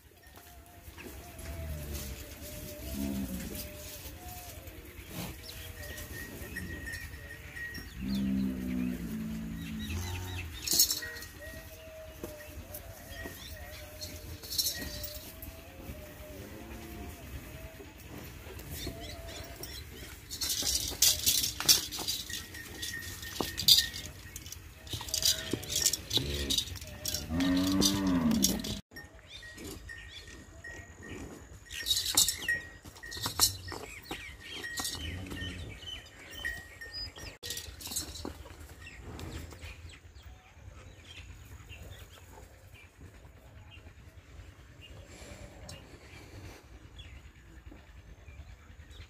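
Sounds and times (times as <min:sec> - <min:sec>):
metallic clinks and knocks: 0:05.5 - 0:15.7, 0:18.0 - 0:39.7
cow mooing: 0:08.0 - 0:10.8, 0:24.9 - 0:28.8.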